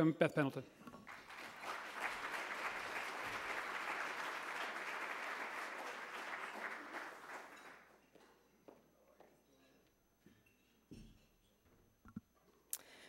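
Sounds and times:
audience applauding: 0:01.0 - 0:07.9.

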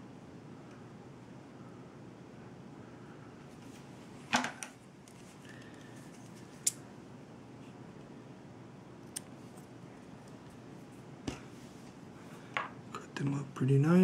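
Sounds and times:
faint room hiss: 0:00.0 - 0:14.0.

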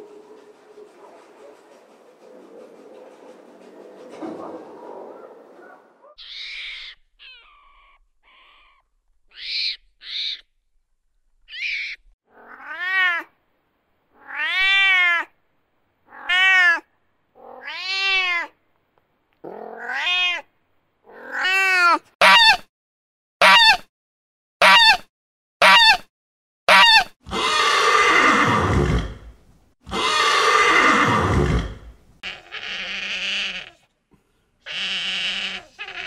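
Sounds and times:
cat meowing: 0:11.6 - 0:13.3, 0:14.2 - 0:15.3, 0:16.1 - 0:18.6, 0:19.5 - 0:20.5, 0:21.1 - 0:22.0, 0:29.9 - 0:33.8, 0:34.7 - 0:36.0.

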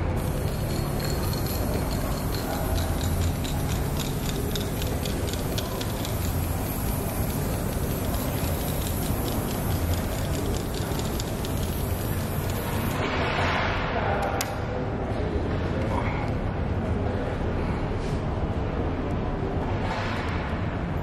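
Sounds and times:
spray-paint can hissing: 0:00.2 - 0:13.0.

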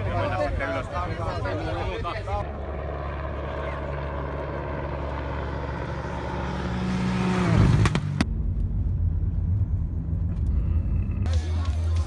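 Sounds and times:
rally car engine passing: 0:04.5 - 0:11.3.

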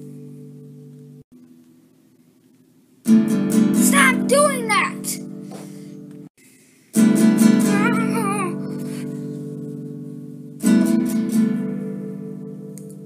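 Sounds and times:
acoustic guitar chords: 0:03.0 - 0:13.0.

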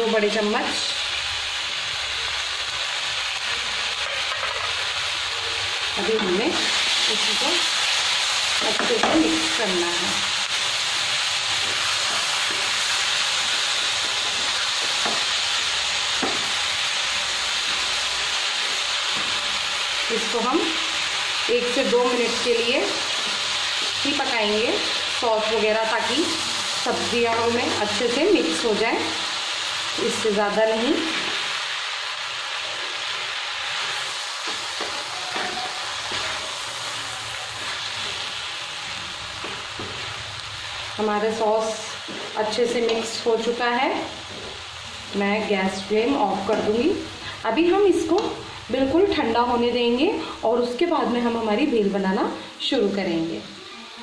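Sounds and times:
vegetables sizzling in a pan: 0:00.0 - 0:54.0
spatula stirring in a pan: 0:10.2 - 0:44.9.

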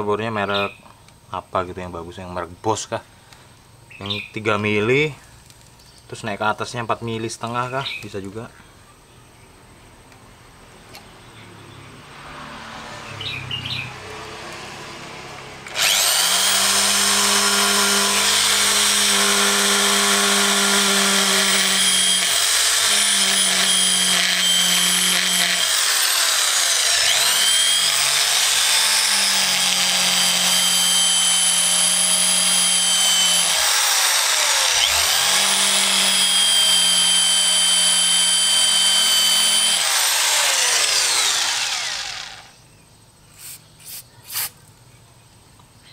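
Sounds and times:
electric drill whining: 0:15.6 - 0:42.5.

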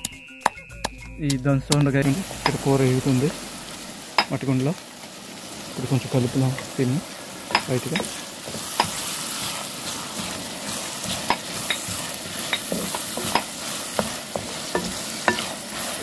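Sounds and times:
onions sizzling in oil: 0:01.9 - 0:16.0
wooden spatula clicking on pot: 0:11.2 - 0:15.5.

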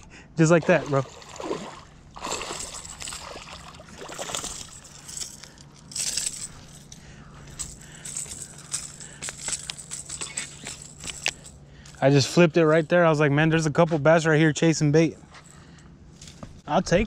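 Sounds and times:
fish splashing at water surface: 0:00.6 - 0:04.6
light clicks and rattles: 0:04.2 - 0:12.1.

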